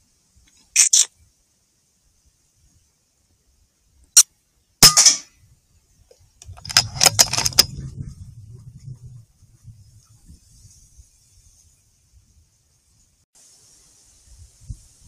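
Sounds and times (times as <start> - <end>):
metallic clicks: 6.4 - 7.8.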